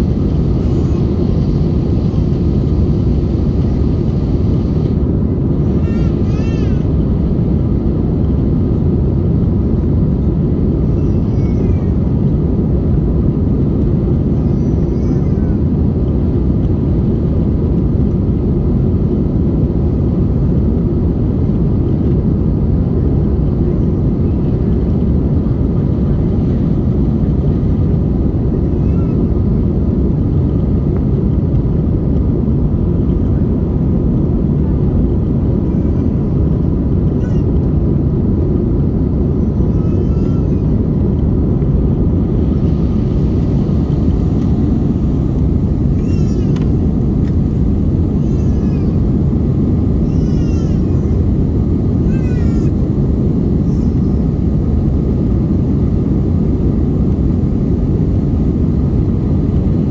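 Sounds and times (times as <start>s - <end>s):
jet engine and airflow rush: 0.0s - 59.9s.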